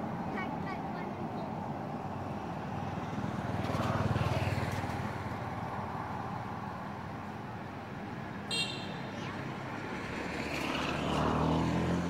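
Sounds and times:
outdoor background noise: 0.0 - 12.0
vehicle engine passing by: 9.8 - 12.0.

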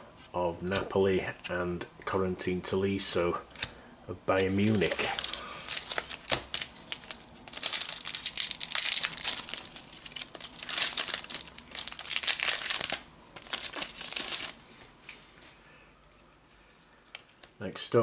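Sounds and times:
plastic wrapper tearing and crinkling: 4.4 - 14.6.

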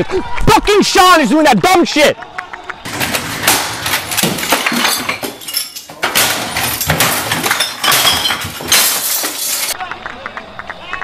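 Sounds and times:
bottles clinking and clattering: 2.9 - 9.8
crashes of smashing: 2.9 - 9.8
glass breaking: 2.9 - 9.8.

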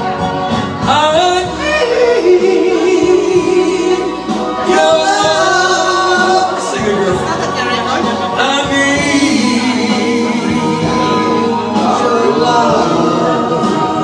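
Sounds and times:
accompanying music: 0.0 - 14.0
man and woman singing duet: 0.8 - 14.0.

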